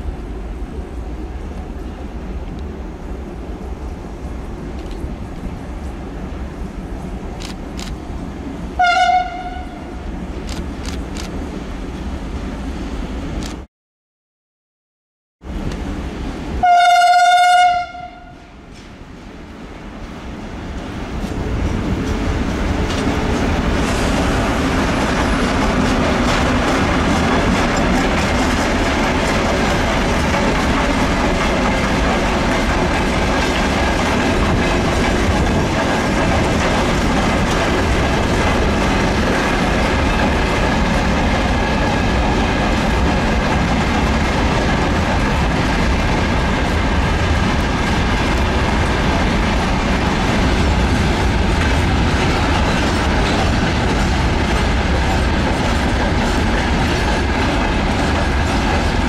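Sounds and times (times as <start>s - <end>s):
freight train rolling past: 0.0s - 13.6s, 15.4s - 59.0s
wheels clacking over rail joints: 20.7s - 59.0s.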